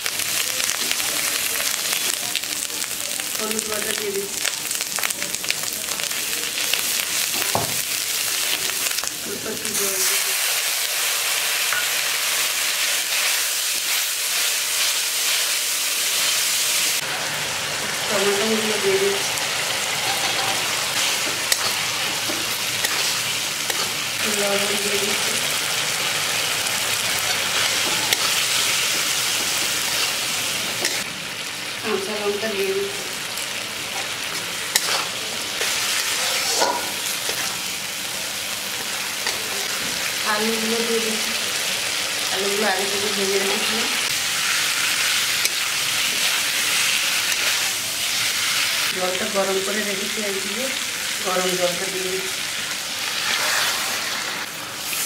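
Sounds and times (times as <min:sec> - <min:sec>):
onions sizzling in hot oil: 0:00.0 - 0:55.0
spatula scraping a pan: 0:19.9 - 0:24.0, 0:34.7 - 0:37.6, 0:53.1 - 0:54.2.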